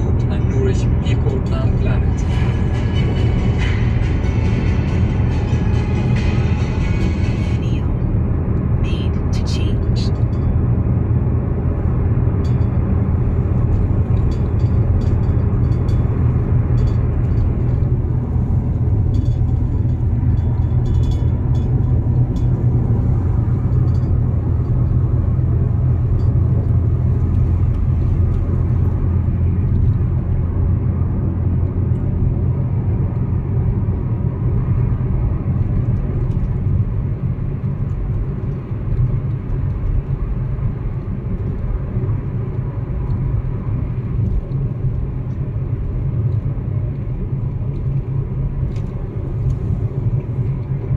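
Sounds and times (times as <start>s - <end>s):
car road and engine rumble: 0.0s - 50.9s.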